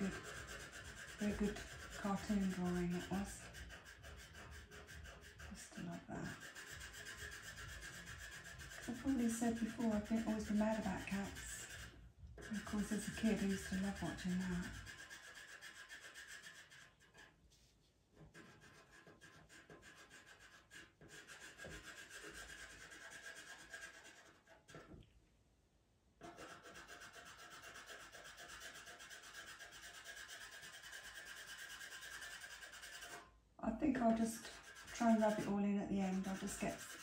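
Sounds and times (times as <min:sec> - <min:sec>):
pencil scratching on paper: 0:00.0 - 0:25.0, 0:26.2 - 0:37.0.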